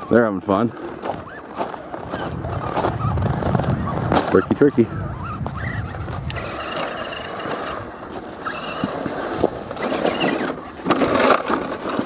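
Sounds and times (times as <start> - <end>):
tyres churning through mud: 0.0 - 12.0
electric motor whine: 4.9 - 11.8.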